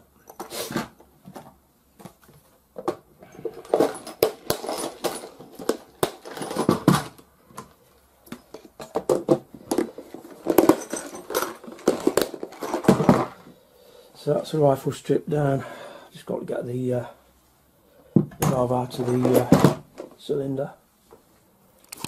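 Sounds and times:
metal parts rattling in plastic tubs: 0:02.8 - 0:07.3, 0:08.3 - 0:13.6, 0:18.3 - 0:20.3.

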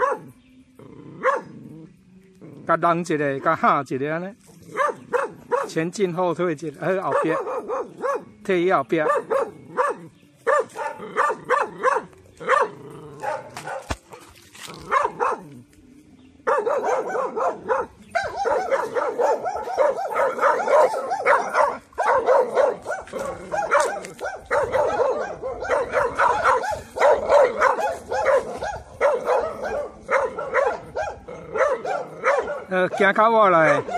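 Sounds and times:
dog barking rapidly: 0:00.0 - 0:00.3, 0:01.2 - 0:01.5, 0:04.7 - 0:05.8, 0:06.9 - 0:08.4, 0:09.0 - 0:14.1, 0:14.8 - 0:15.5, 0:16.5 - 0:33.9.

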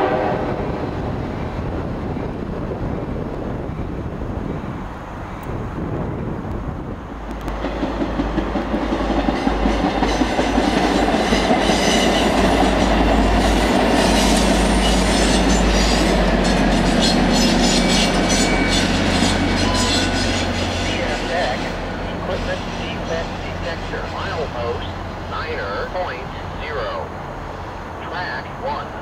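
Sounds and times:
diesel locomotive engine drone: 0:00.0 - 0:29.0
train wheels clicking over rail joints: 0:07.2 - 0:23.2.

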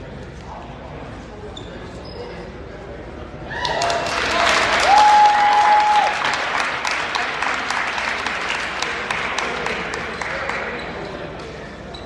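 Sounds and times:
spectators clapping and cheering: 0:03.5 - 0:11.0.

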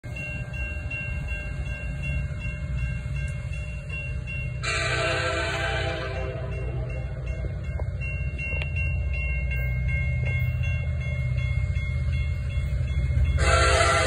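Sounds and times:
locomotive air horn blast: 0:04.6 - 0:06.5, 0:13.4 - 0:14.0.

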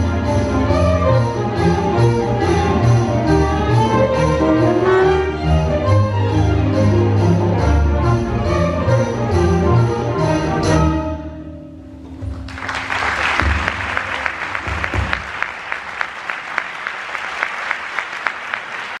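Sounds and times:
orchestra chord: 0:00.0 - 0:12.4
audience applause: 0:12.4 - 0:19.0.

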